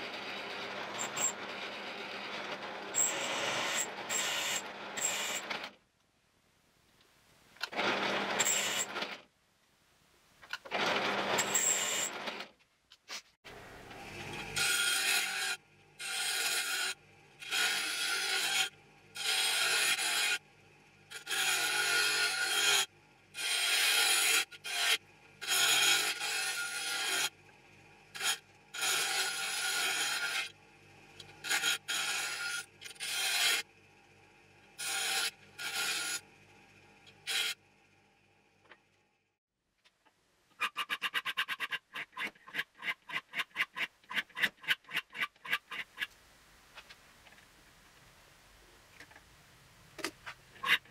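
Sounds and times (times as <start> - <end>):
knife blade grinding on wheel: 0.0 - 5.5
drill press squealing into steel: 3.0 - 4.3.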